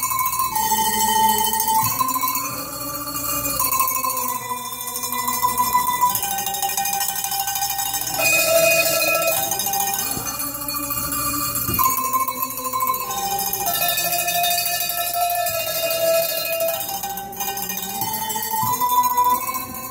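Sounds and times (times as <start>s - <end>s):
tuned cowbells playing melody: 0.0s - 19.9s.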